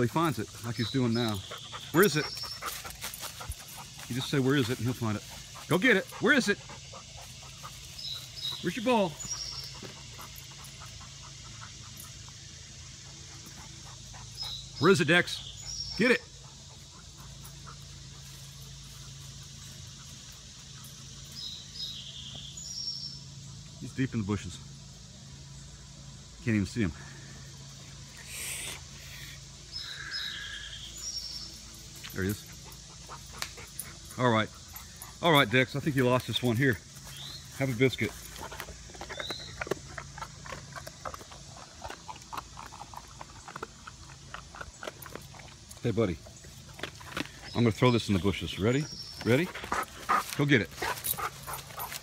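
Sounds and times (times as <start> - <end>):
insect hiss: 0.0 - 52.0
steady low hum: 0.0 - 52.0
dog crunching a biscuit: 38.5 - 45.8.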